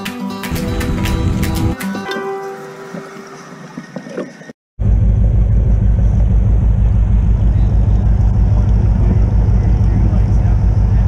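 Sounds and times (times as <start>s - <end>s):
boat engine rumbling: 2.6s - 11.0s.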